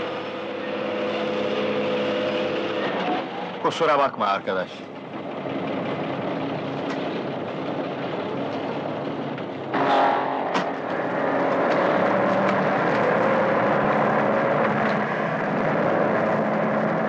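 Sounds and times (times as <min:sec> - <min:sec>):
truck engine labouring: 0:00.0 - 0:17.0
sharp knock: 0:09.8 - 0:11.9.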